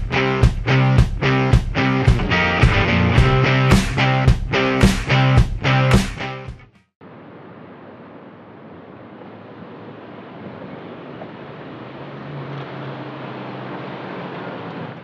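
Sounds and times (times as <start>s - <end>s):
street traffic noise: 0.0s - 5.9s, 7.0s - 15.0s
motorcycle passing: 9.1s - 15.0s.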